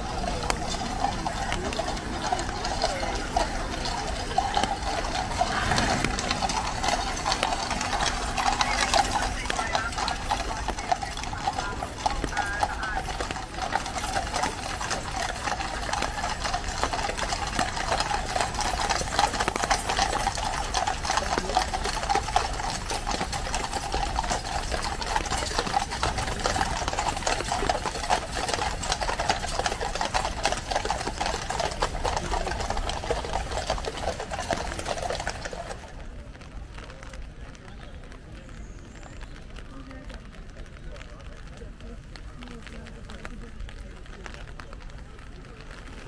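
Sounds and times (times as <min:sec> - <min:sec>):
horse hooves clip-clopping on wet road: 0:00.0 - 0:46.0.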